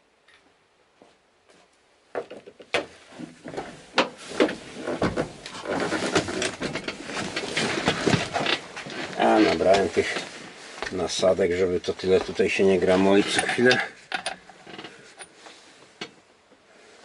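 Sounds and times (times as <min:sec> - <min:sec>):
rustling: 0:01.5 - 0:16.2
knocks and clatter: 0:02.1 - 0:10.2.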